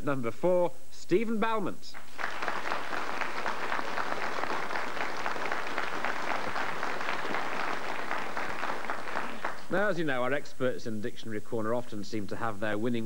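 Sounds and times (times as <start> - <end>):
studio audience applauding: 2.0 - 9.8.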